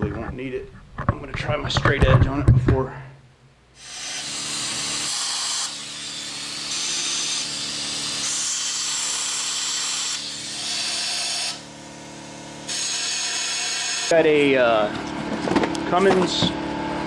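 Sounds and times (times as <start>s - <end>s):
compressed air blow gun hissing: 3.8s - 11.6s.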